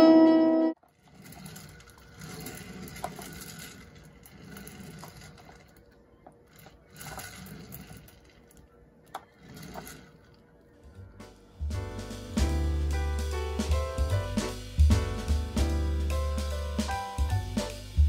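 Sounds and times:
low room hum: 0.6s - 16.3s.

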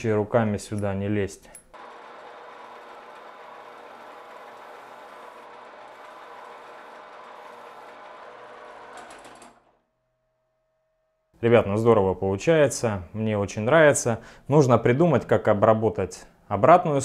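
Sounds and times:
metal lathe whirring: 1.8s - 9.8s.

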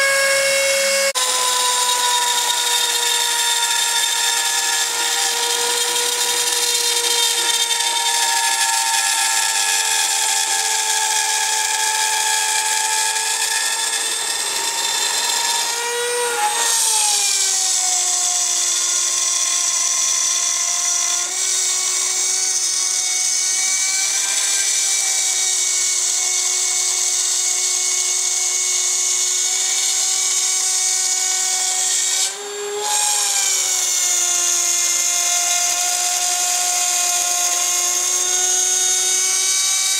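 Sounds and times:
router spindle whining: 0.0s - 39.9s.

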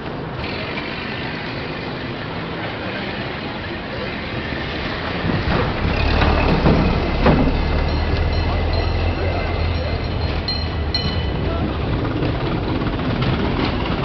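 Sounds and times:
crowd noise: 0.0s - 14.0s
traffic noise: 0.0s - 14.0s
sharp knocks: 5.4s - 8.2s.

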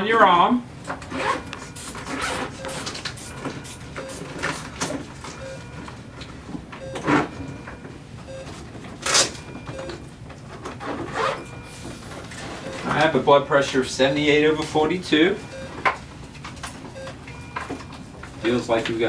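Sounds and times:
soft monitor beeps: 1.2s - 6.1s, 6.7s - 10.2s, 11.1s - 13.2s, 14.6s - 15.9s, 17.0s - 18.8s.

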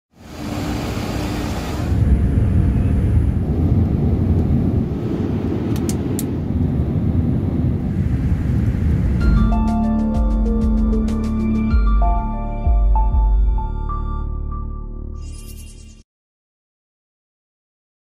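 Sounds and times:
vehicle rumble: 0.1s - 11.7s.

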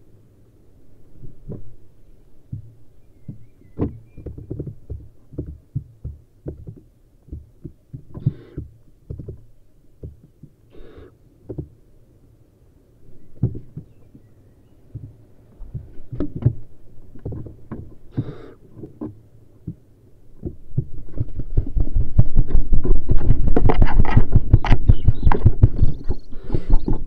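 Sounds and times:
owl nestling hissing: 8.2s - 8.6s, 10.7s - 11.2s, 18.1s - 18.6s.

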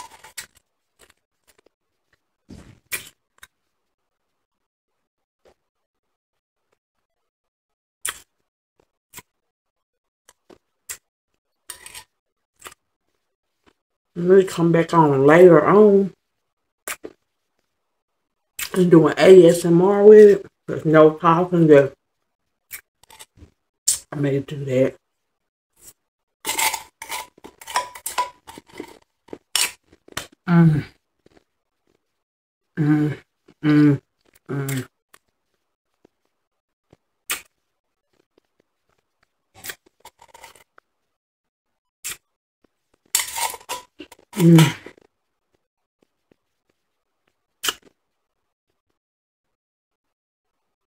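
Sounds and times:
crushed ice being chewed: 25.8s - 30.4s
metal spoon clinking on steel: 26.5s - 28.9s
person humming mmm: 32.8s - 34.9s.

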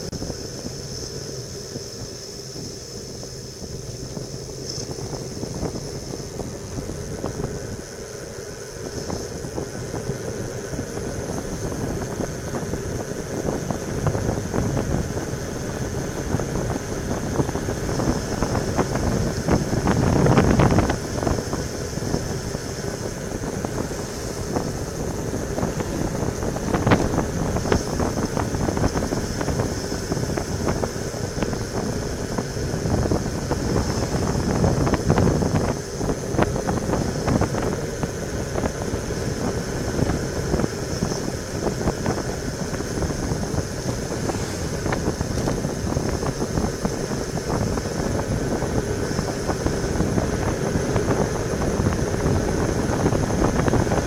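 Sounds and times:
tyre noise on asphalt: 0.0s - 54.0s
wind rushing over microphone: 0.0s - 54.0s.

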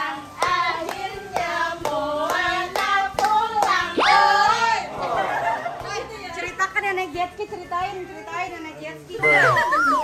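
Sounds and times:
sing-song voices: 0.0s - 6.6s
women clapping hands: 0.4s - 4.0s.

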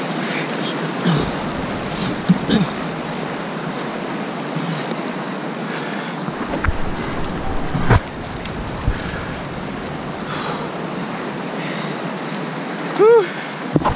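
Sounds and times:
whitewater rushing: 0.0s - 13.9s
kayak thump: 6.3s - 9.3s
wind on microphone: 6.3s - 11.1s.

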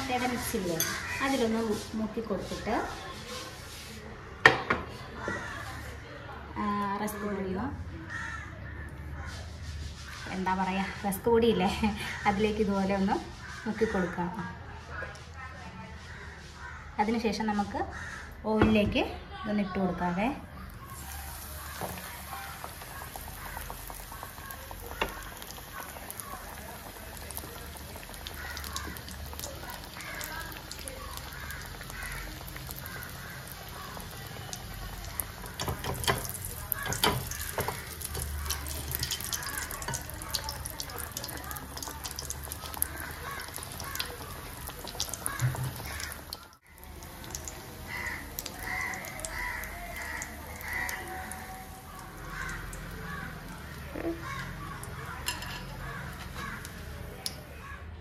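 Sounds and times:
food sizzling in hot oil: 0.0s - 4.0s, 20.6s - 57.4s
oil popping: 20.7s - 57.4s
bird calling: 27.5s - 35.8s, 41.0s - 56.7s.

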